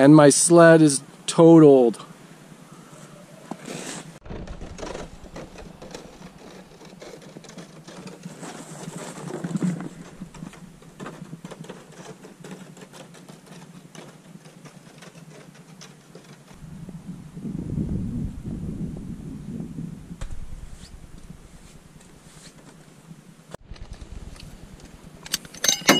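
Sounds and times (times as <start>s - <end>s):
footsteps crunching through snow: 3.6s - 11.4s.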